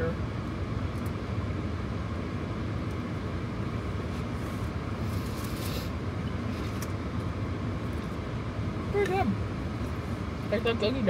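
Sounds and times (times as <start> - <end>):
constant low hum: 0.0 - 11.0
low room noise rumble: 0.0 - 11.0
brief high hiss: 5.0 - 6.0.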